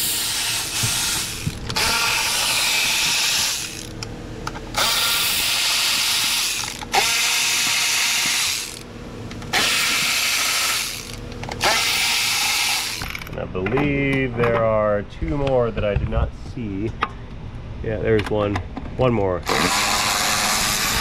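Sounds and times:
power ratchet spinning: 0.0s - 4.0s, 4.7s - 8.9s, 9.5s - 13.3s, 19.4s - 21.0s
ratchet clicks: 4.8s - 8.8s.

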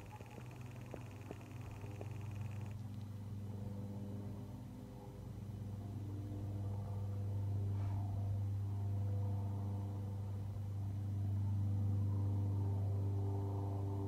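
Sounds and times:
kitten purring: 0.0s - 2.8s.

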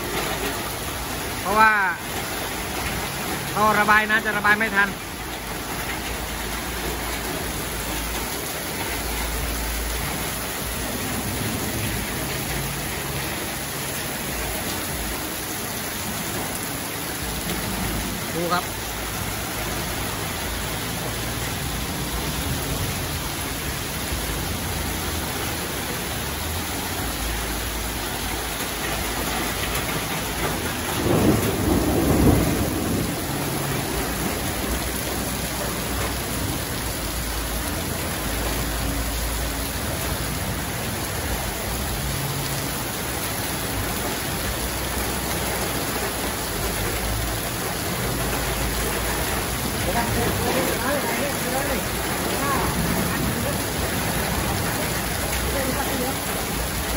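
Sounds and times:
heavy rain pouring: 0.0s - 56.9s
roll of thunder: 29.9s - 34.7s.

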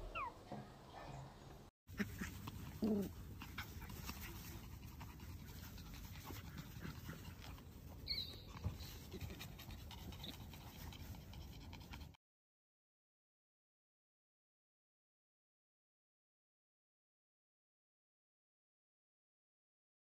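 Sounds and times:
puppy squeak: 0.0s - 0.4s, 8.0s - 8.9s.

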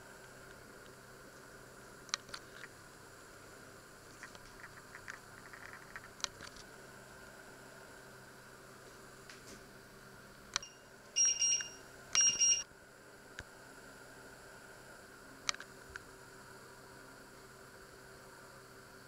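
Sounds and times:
electronic beeps: 10.6s - 12.6s.

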